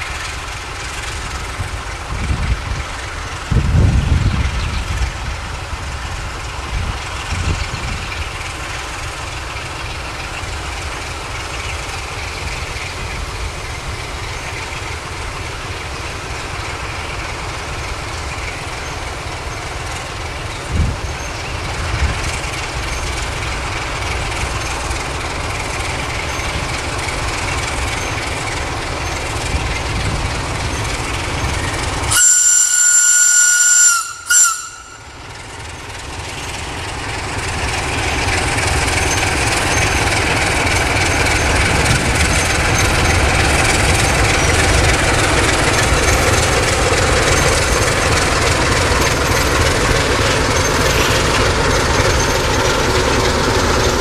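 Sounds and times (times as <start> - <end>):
diesel locomotive rumbling: 0.0 - 54.0
locomotive horn blast: 32.1 - 35.2.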